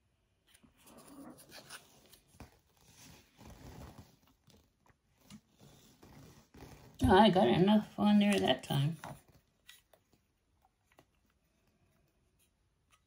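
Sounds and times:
rustling and scraping: 0:00.5 - 0:07.4.

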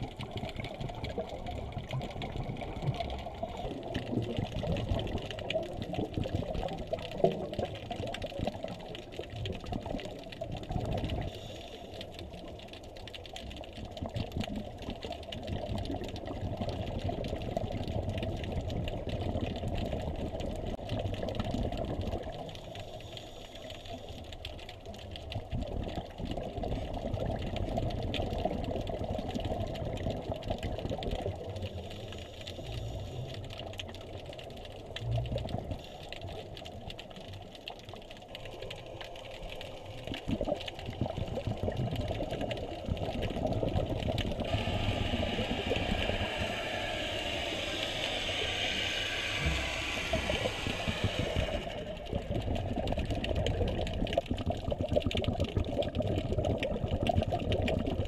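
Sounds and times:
low underwater rumble: 0:00.0 - 0:23.2, 0:24.8 - 0:58.0
underwater crackling clicks: 0:00.0 - 0:58.0
hissing: 0:38.3 - 0:52.2.

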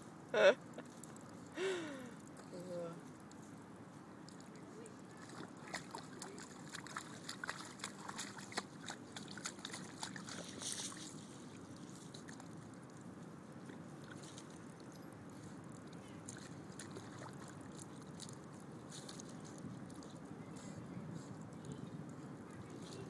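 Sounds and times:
low steady background hiss: 0:00.0 - 0:08.1
puppy digging in wet mud: 0:03.1 - 0:23.0.

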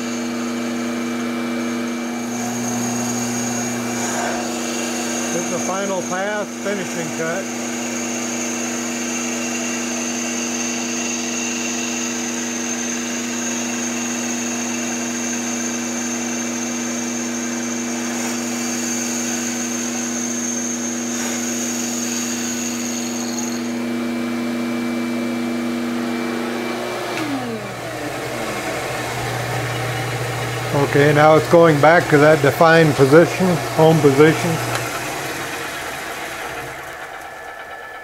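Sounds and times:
motor winding down: 0:00.0 - 0:23.9, 0:26.3 - 0:38.0
wood lathe motor hum and whine: 0:00.0 - 0:38.0
hiss of cutting wood: 0:02.3 - 0:08.1, 0:17.7 - 0:23.7.

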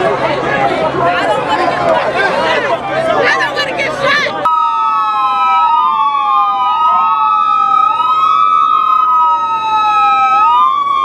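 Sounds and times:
police sirens wailing: 0:04.3 - 0:11.0
held siren tone: 0:04.5 - 0:11.0.

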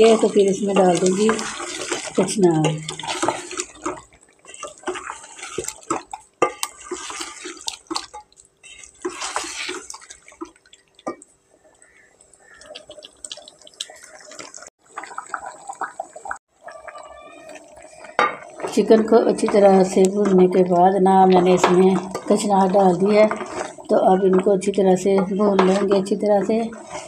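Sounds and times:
spoon scraping against pot: 0:00.0 - 0:10.2, 0:21.4 - 0:27.0
wet sizzle of frying: 0:00.0 - 0:27.0.

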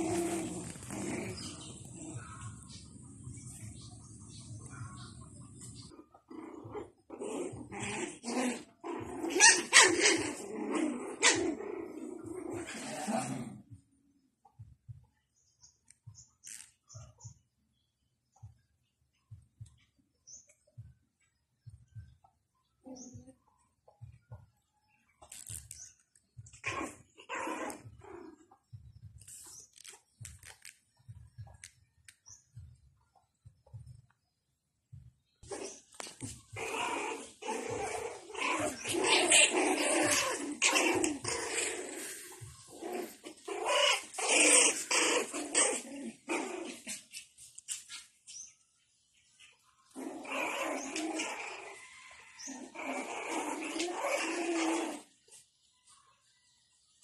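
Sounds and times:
puppies scuffling on tile floor: 0:00.0 - 0:02.8
puppies growling and yipping: 0:00.0 - 0:13.8, 0:15.6 - 0:17.4, 0:19.6 - 0:24.5, 0:25.2 - 0:32.8, 0:35.4 - 0:48.5, 0:49.4 - 0:55.4.

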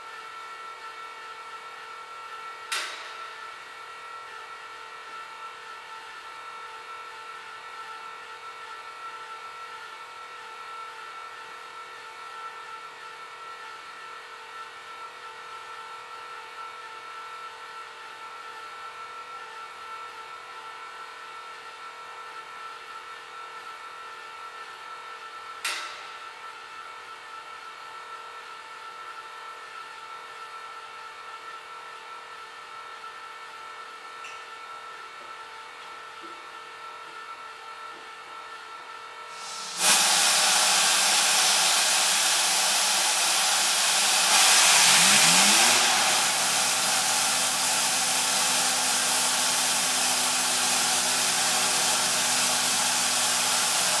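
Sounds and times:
turbojet engine whine and rush: 0:39.4 - 0:54.0.

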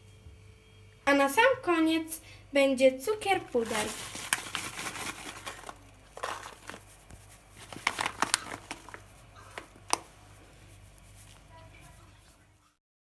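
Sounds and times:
paper bag crinkling: 0:03.3 - 0:11.5.

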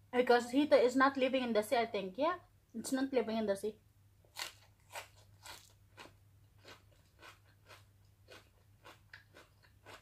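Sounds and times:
chewing leafy greens: 0:04.4 - 0:10.0.

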